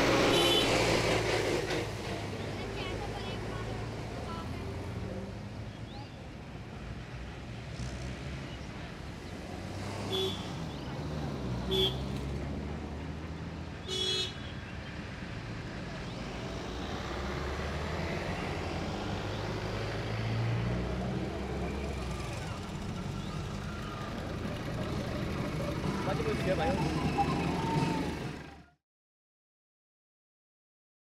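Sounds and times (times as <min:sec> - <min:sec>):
highway traffic rumble: 0:00.0 - 0:28.7
passing vehicle rumble: 0:00.0 - 0:28.8
vehicle horns honking: 0:00.1 - 0:01.0, 0:10.0 - 0:10.7, 0:11.6 - 0:12.2, 0:13.8 - 0:14.6.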